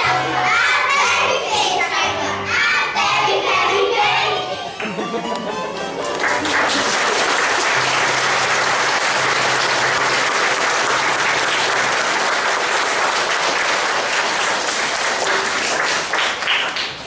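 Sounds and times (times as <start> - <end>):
children applauding: 6.0 - 17.0.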